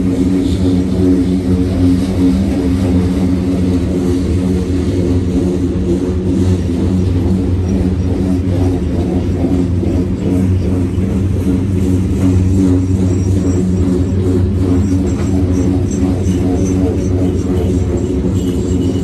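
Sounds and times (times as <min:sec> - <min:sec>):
freight train rolling past: 0:00.0 - 0:19.0.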